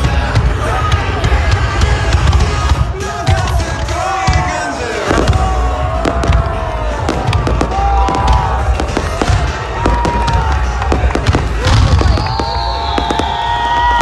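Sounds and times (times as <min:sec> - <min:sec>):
fireworks bangs and crackles: 0:00.0 - 0:14.0
rising and falling whistles: 0:12.0 - 0:14.0.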